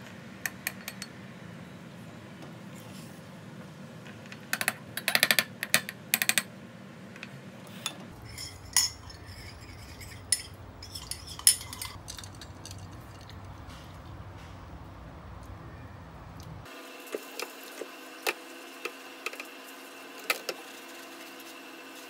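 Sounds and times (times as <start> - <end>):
spoon scraping glass tumbler: 7.8 - 13.4
glass clinks: 8.2 - 12.9.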